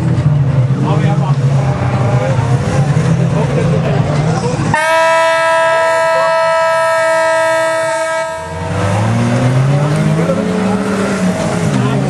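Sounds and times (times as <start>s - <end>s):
race car engines: 0.0s - 12.0s
long horn blast: 4.7s - 9.5s.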